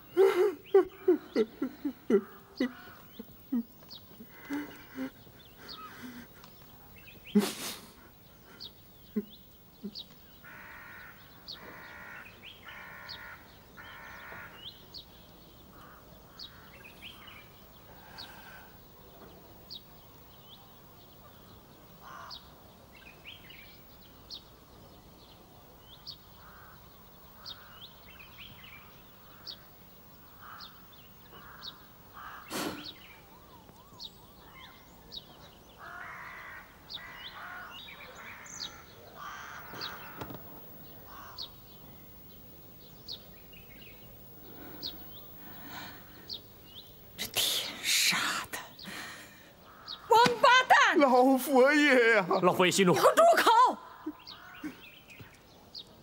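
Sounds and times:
small birds chirping: 0.0s - 56.0s
crows cawing: 1.0s - 6.6s, 10.4s - 15.0s, 15.7s - 17.3s, 22.0s - 22.6s, 26.3s - 28.2s, 29.2s - 33.6s, 35.8s - 41.8s, 48.9s - 50.3s, 53.8s - 54.9s.

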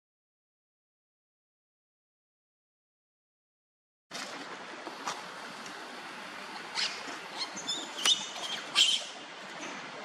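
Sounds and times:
steady outdoor hiss: 4.1s - 10.0s.

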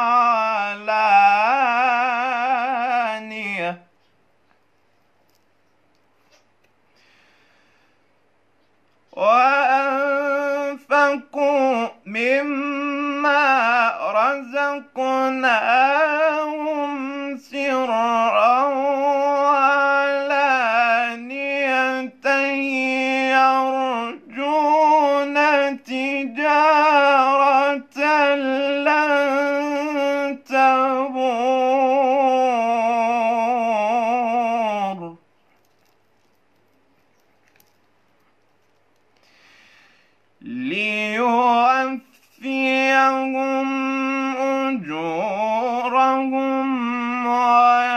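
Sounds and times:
man chanting melodically: 0.0s - 4.0s, 9.1s - 35.2s, 40.4s - 47.9s
short breaths: 6.2s - 8.2s, 39.2s - 40.4s.

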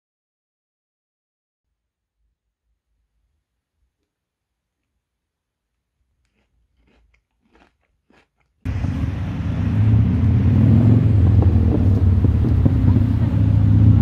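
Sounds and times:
person chewing cookie: 5.6s - 8.7s
outdoor ambience with deep rumble: 8.6s - 14.0s.

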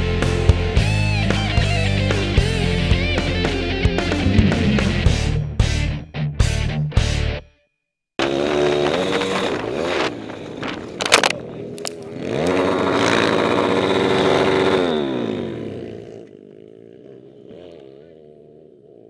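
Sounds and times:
pit bike engine revving: 0.2s - 5.4s, 8.2s - 19.0s
bike crashing into dirt: 8.2s - 12.1s.

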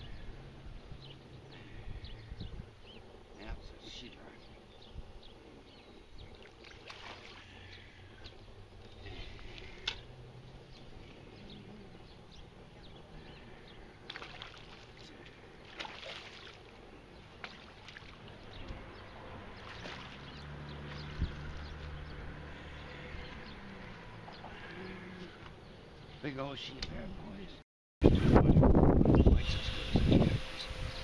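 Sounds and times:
water splashing: 6.3s - 7.8s, 14.0s - 18.6s, 19.5s - 21.9s.

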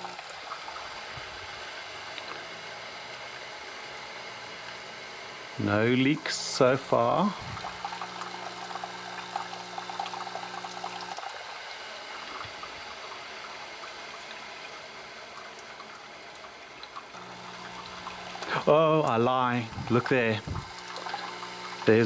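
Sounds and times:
pump electric hum: 0.0s - 22.0s.

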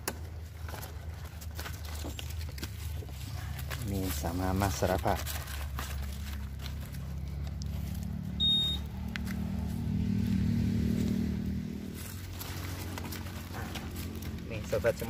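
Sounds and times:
small vehicle engine running: 5.3s - 15.0s
short high peep: 8.4s - 8.9s.

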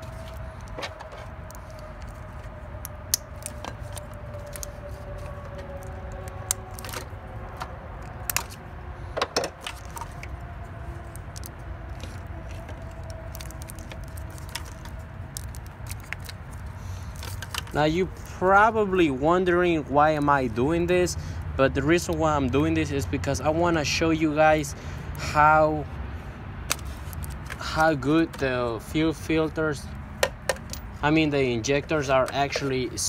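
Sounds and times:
plastic and metal parts rattling: 11.4s - 17.8s.

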